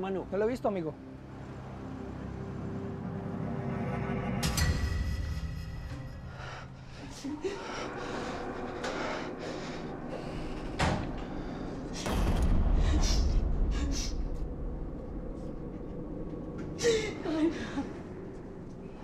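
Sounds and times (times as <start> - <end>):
loud low rumble with clatter: 8.2 - 19.0.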